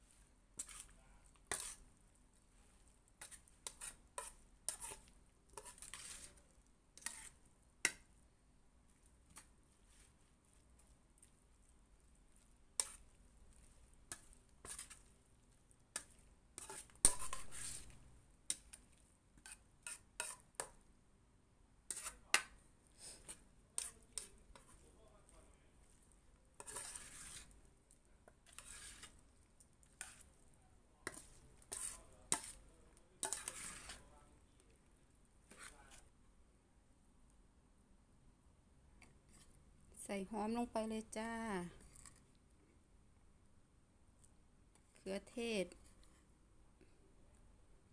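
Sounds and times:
spatula scraping metal bowl: 0.6s - 1.9s, 3.2s - 8.0s, 12.4s - 15.1s, 15.7s - 18.8s, 19.4s - 20.7s, 21.9s - 22.4s, 23.1s - 24.9s, 26.6s - 27.6s, 28.2s - 30.4s, 31.0s - 34.2s, 35.5s - 36.0s
metal spatula clinking on bowl: 33.2s - 34.0s.

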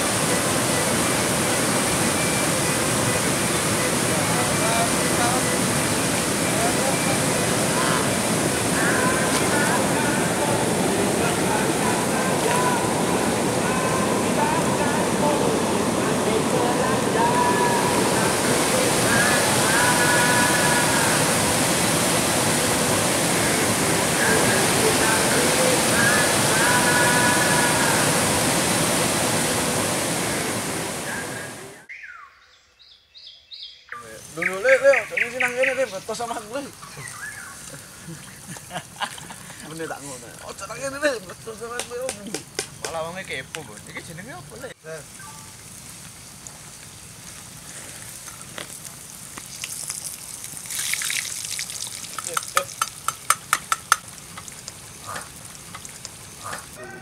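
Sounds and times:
steady hiss: 0.0s - 31.8s, 33.9s - 56.8s
river water rushing: 0.0s - 31.9s
ringing taps: 52.3s - 54.1s.

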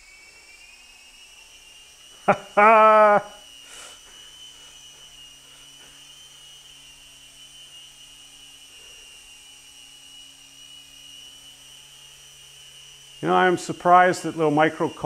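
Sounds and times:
model helicopter rotors humming: 0.0s - 15.0s.

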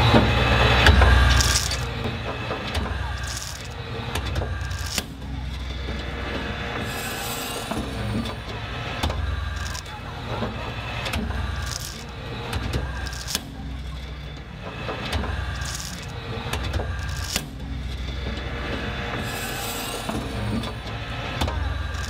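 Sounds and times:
crowd murmur: 0.0s - 22.0s
scattered clicks: 0.8s - 6.1s, 8.1s - 17.6s, 20.6s - 22.0s.

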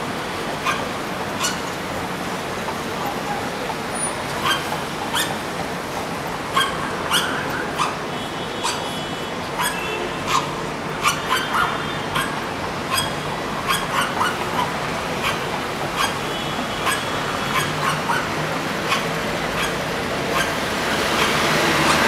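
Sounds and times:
dog barking: 0.6s - 1.7s, 4.4s - 5.4s, 6.5s - 8.0s, 8.6s - 9.0s, 9.6s - 22.0s
dog whining: 0.6s - 1.7s, 4.4s - 5.4s, 6.5s - 8.0s, 8.6s - 8.9s, 9.6s - 16.2s, 16.8s - 20.6s, 21.2s - 22.0s.

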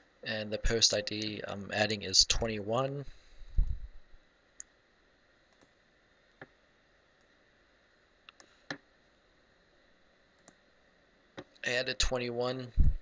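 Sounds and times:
computer mouse clicks: 5.5s - 5.8s, 8.3s - 8.8s, 10.4s - 10.6s.

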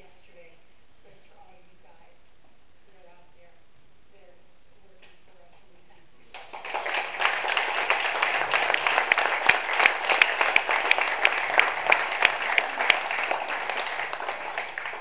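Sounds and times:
audience applauding: 6.4s - 15.0s
person clapping close by: 6.4s - 15.0s.

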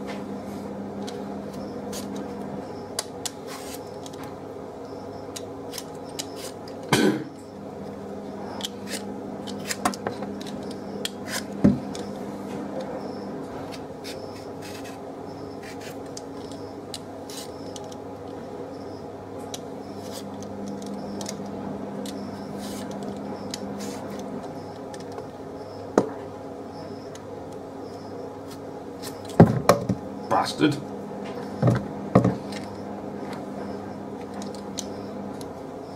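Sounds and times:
steady low hum: 0.0s - 35.9s
peeler scraping potato: 8.5s - 11.6s, 13.7s - 15.0s, 15.6s - 16.7s, 17.3s - 18.0s.

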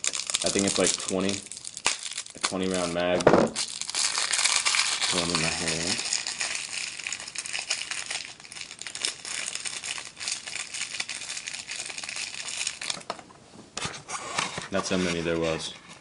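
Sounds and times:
plastic pellets clicking: 0.0s - 3.0s, 3.6s - 13.1s
plastic bag crinkling: 0.0s - 13.1s.

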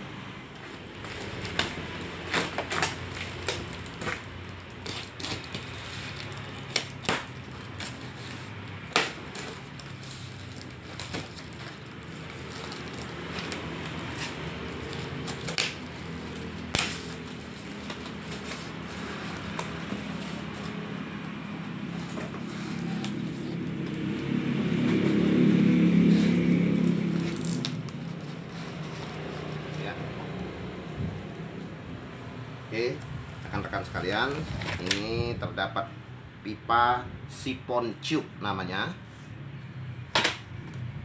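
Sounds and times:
cardboard flaps crackling: 0.6s - 24.2s
packing tape tearing: 0.7s - 21.2s, 21.8s - 24.2s, 26.0s - 30.0s, 34.2s - 35.1s.

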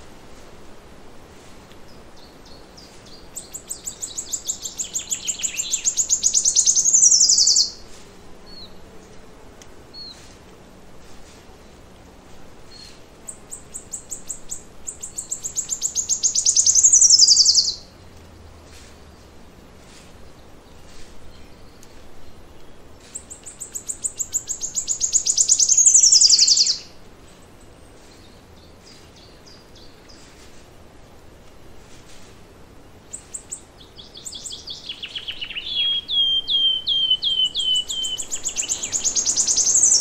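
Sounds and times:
songbird singing: 1.6s - 40.0s
birds chirping: 1.9s - 9.2s, 12.7s - 17.8s, 20.4s - 30.5s, 32.8s - 40.0s.

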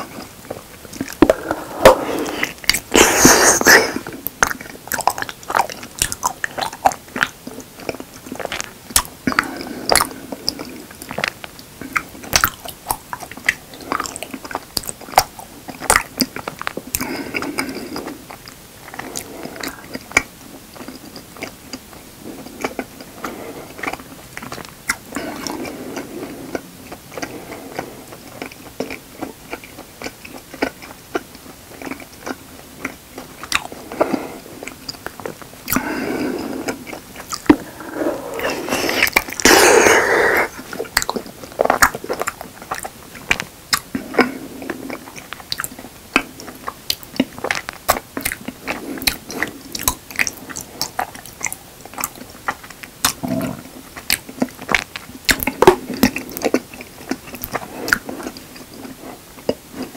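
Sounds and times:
chewing honeycomb: 0.0s - 59.9s
sharp mouth clicks: 45.1s - 56.6s.

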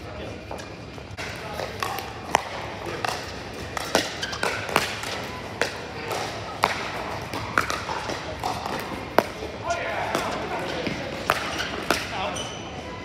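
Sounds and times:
paddles striking plastic ball: 1.2s - 9.4s.

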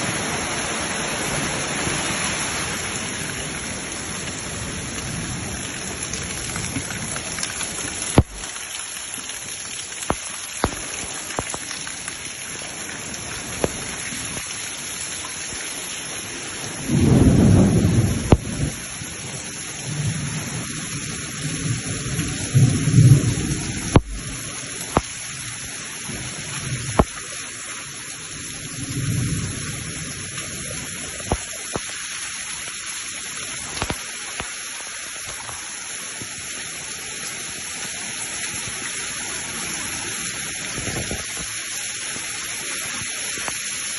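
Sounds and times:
heavy rain pouring: 0.0s - 43.9s
water rushing through street: 0.0s - 43.9s
thunder rumbling: 16.8s - 18.8s.

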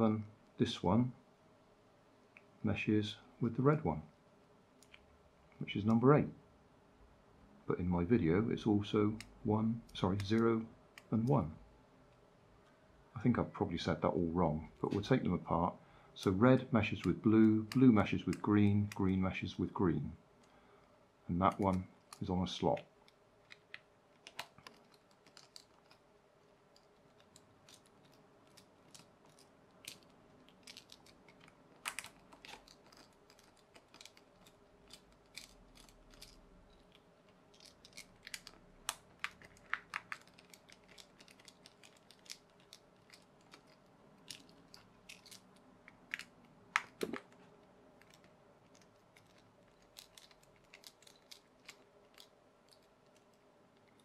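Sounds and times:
screwdriver clicking on small screws: 26.7s - 45.4s.

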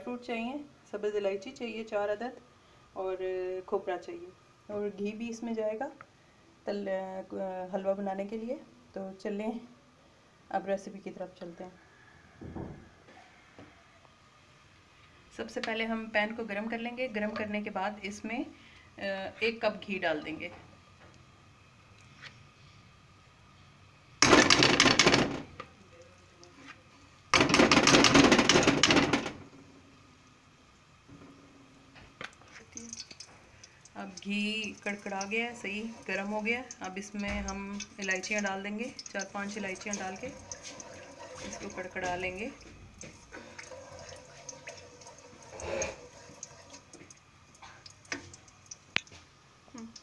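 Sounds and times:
spices crackling in hot fat: 32.0s - 50.0s
spatula scraping metal pot: 34.9s - 36.6s, 39.1s - 42.4s, 43.3s - 46.8s.

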